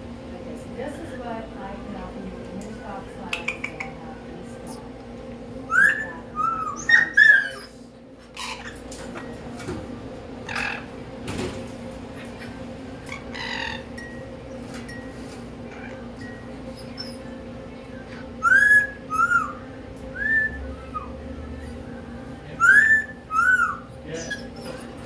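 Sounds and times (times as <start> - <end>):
steady low hum: 0.0 - 25.0
parrot whistling: 5.7 - 7.8, 13.1 - 13.9, 18.0 - 24.9
parrot call: 5.7 - 8.8, 10.4 - 10.9, 13.1 - 13.9, 18.1 - 21.9, 22.6 - 24.9.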